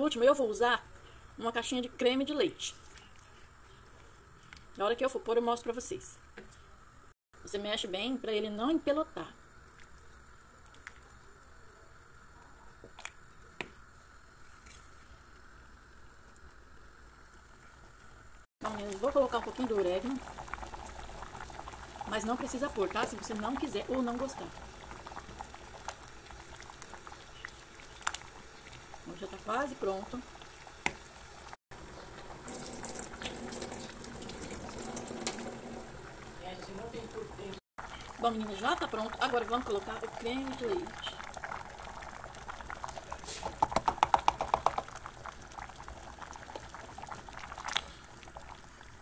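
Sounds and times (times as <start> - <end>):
pot of sauce bubbling: 15.2 - 49.0
watery rushing with crackles: 18.6 - 49.0.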